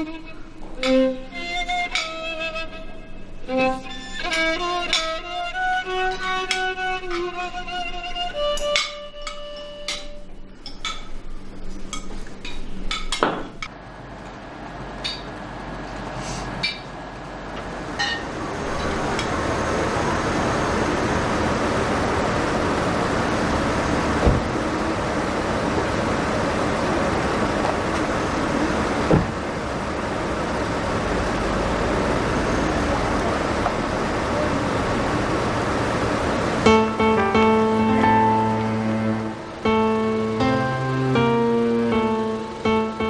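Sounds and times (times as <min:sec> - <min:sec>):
slow violin melody: 0:00.0 - 0:10.5, 0:36.6 - 0:43.0
traffic noise: 0:00.0 - 0:43.0
low thump: 0:24.2 - 0:24.6, 0:29.1 - 0:29.4.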